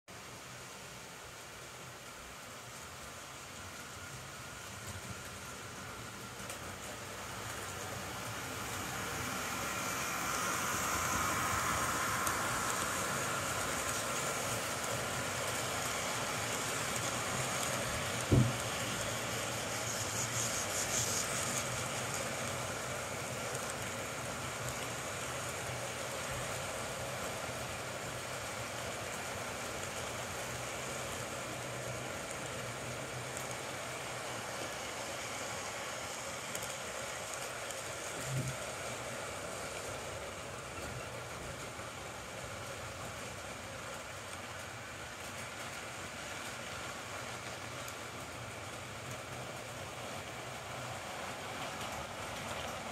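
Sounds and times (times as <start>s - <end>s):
model train wheels whirring on rails: 0.1s - 52.9s
sharp knock: 18.3s - 18.6s.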